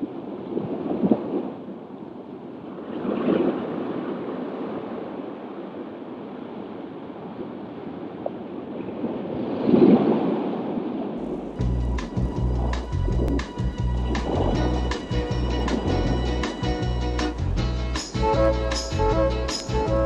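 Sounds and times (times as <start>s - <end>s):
small waves breaking: 0.0s - 16.6s
shallow sea water washing: 7.0s - 16.6s.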